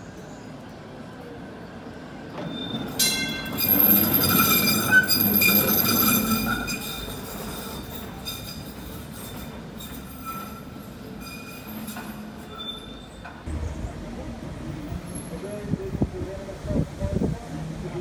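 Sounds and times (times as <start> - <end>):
tram low rumble: 0.0 - 18.0
tram wheels squealing: 1.5 - 15.6.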